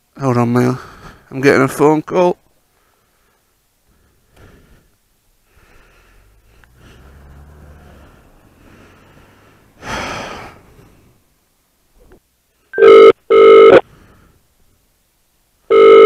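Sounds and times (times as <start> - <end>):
phone double ring: 12.8 - 13.8, 15.7 - 16.0.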